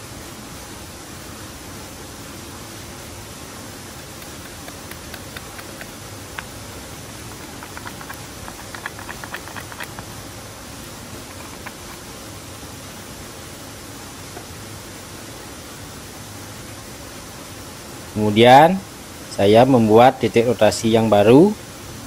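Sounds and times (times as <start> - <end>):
light clicks and taps: 4.0 - 10.1.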